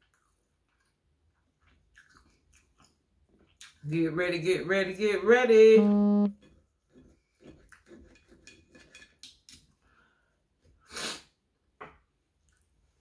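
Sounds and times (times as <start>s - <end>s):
chewing: 0.0s - 3.8s, 7.5s - 8.4s
sniff through the nose: 10.8s - 11.4s.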